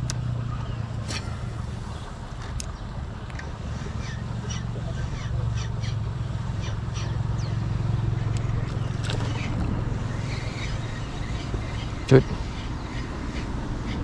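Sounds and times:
low motor drone: 0.0s - 14.0s.

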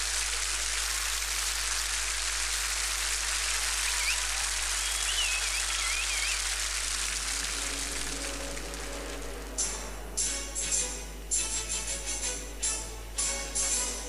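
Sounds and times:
sparklers fizzing: 0.0s - 9.8s
faint wavering whistles: 3.6s - 6.6s.

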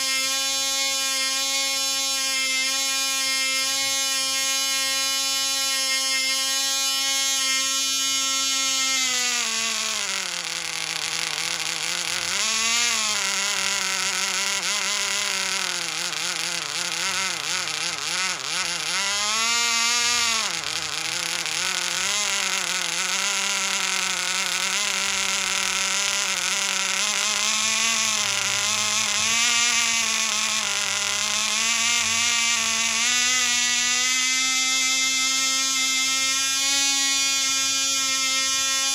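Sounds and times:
model engine buzzing whine: 0.0s - 38.9s.

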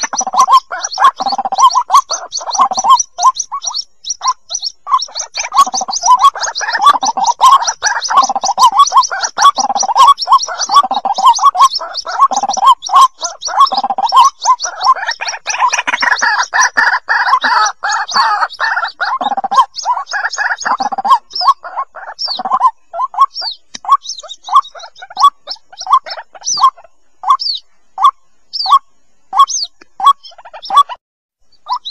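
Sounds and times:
chicks chattering and peeping: 0.0s - 31.9s
sharp clicks: 23.7s - 23.9s.

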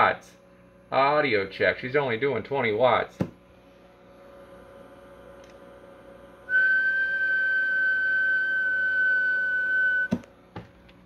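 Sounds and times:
faint equipment hum: 0.0s - 11.0s
high whistled tone: 6.5s - 10.2s.

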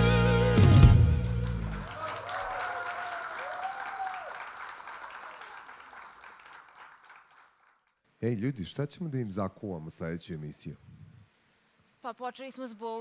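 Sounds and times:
rock band final chord: 0.0s - 1.8s
audience applauding: 1.0s - 8.0s
audience shouts: 1.8s - 4.4s.

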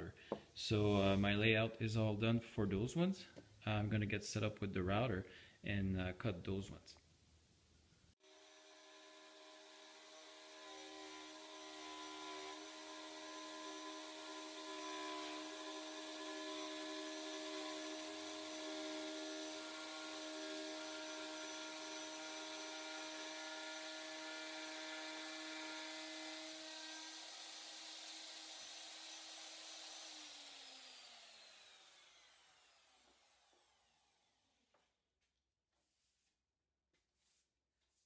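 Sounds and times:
router motor whine: 8.2s - 34.4s.

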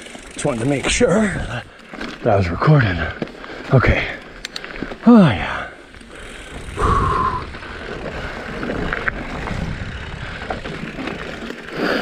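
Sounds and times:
bike clicks and rattles: 0.0s - 12.0s
tyres crunching over stones: 0.1s - 6.6s, 7.5s - 12.0s
wind rumble on microphone: 6.5s - 11.2s.

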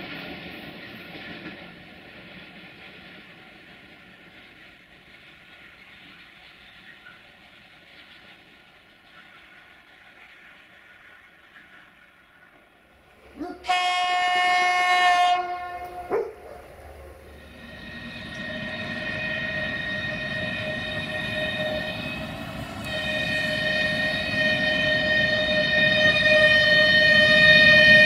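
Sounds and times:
diesel locomotive horn: 13.4s - 28.0s
train running high-pitched tone: 13.4s - 28.0s.

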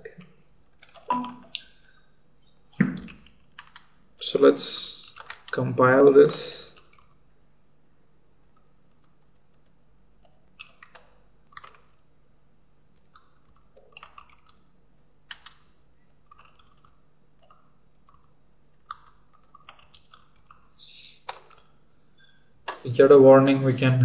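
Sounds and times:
computer keyboard keystrokes: 3.0s - 3.9s, 5.1s - 5.6s, 8.6s - 12.0s, 13.0s - 14.6s, 15.3s - 15.7s, 16.3s - 20.6s.

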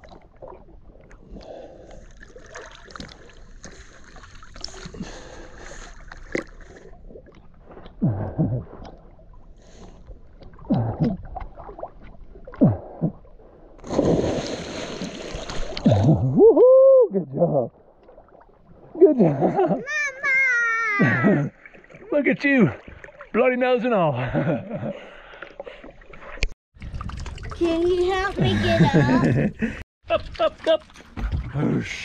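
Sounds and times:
river water sloshing and gurgling: 0.0s - 16.3s, 17.7s - 19.6s, 21.0s - 23.4s, 24.7s - 29.2s
person splashing into river: 13.8s - 16.5s.

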